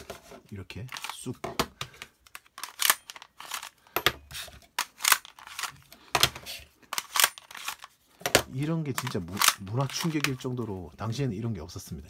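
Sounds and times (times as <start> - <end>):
plastic magazines clicking and scraping: 0.0 - 11.2.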